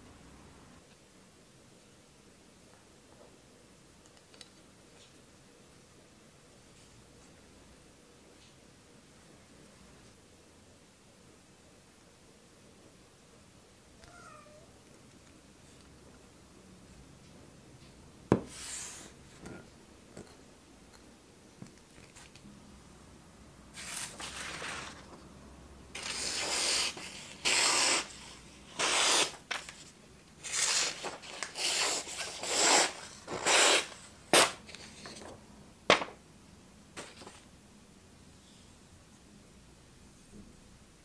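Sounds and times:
blade slicing through paper: 26.0s - 29.8s, 30.4s - 34.9s.

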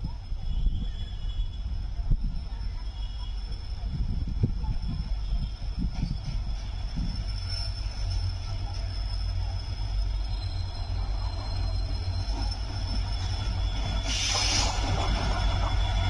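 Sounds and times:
train rumbling: 0.0s - 16.0s
short burst of hiss: 14.0s - 14.9s.

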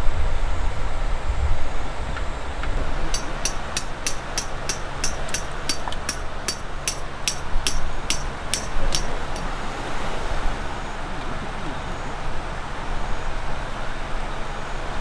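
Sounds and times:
sharp evenly spaced ticks: 3.1s - 9.4s.

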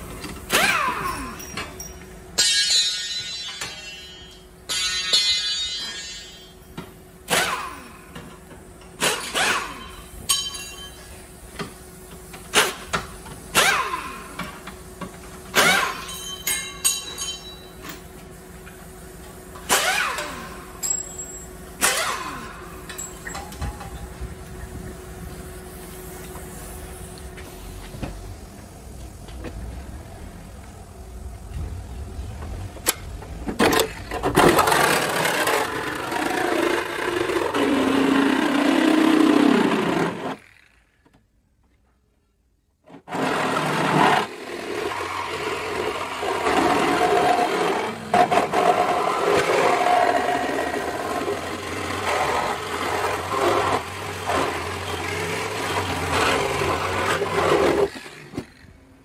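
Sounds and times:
pneumatic wrench whirring: 0.1s - 3.8s, 7.2s - 16.8s, 17.8s - 24.0s, 33.6s - 41.0s, 42.9s - 58.8s
metal clanks and knocks: 22.8s - 24.2s.

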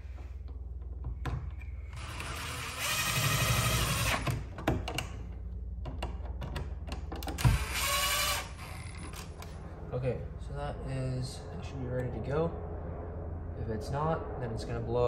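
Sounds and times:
drill driving a screw: 1.9s - 4.4s, 7.4s - 9.0s.

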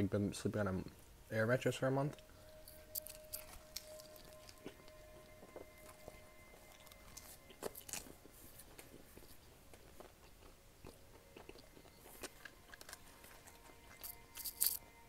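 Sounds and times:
person chewing: 2.2s - 15.0s.

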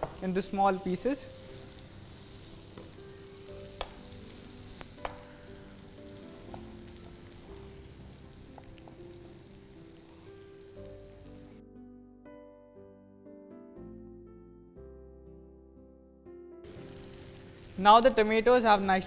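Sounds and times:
tomatoes sizzling in oil: 0.0s - 11.6s, 16.6s - 19.0s
soft background music: 0.0s - 19.0s.

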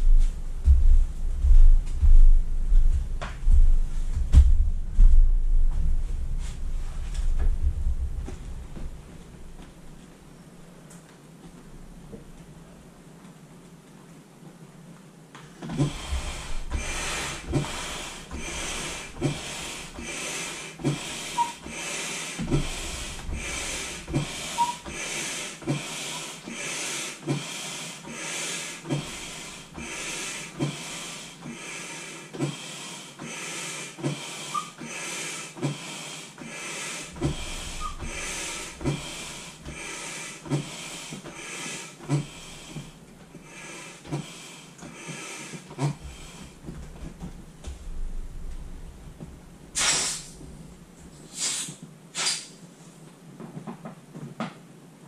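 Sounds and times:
manual air pump strokes: 15.6s - 46.6s, 49.8s - 50.4s, 51.3s - 52.6s.

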